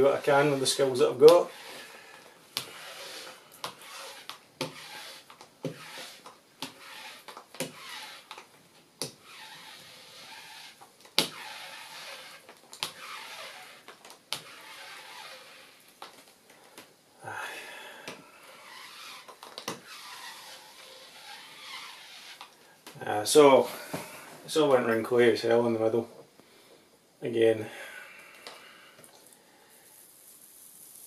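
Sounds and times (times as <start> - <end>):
paint roller scraping over paper: 0.0 - 16.2, 17.6 - 24.8.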